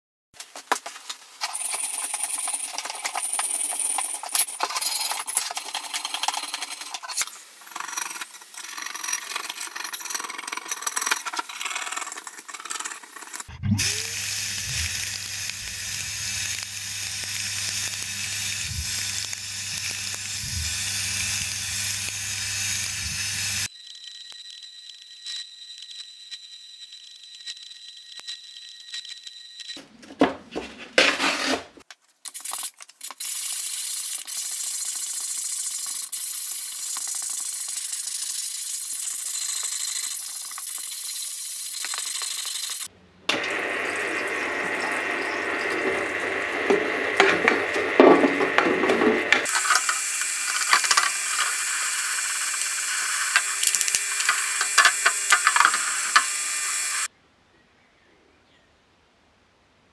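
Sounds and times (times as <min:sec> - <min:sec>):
parts washer pump humming: 0:01.4 - 0:23.7, 0:41.8 - 0:57.1
sandblasting gun hissing: 0:13.8 - 0:23.7, 0:33.3 - 0:42.9, 0:49.2 - 0:57.1.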